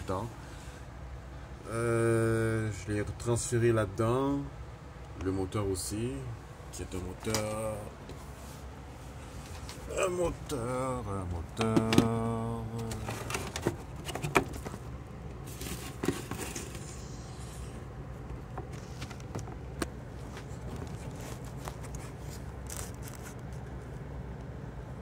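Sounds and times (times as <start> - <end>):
steady low hum: 0.0 - 25.0.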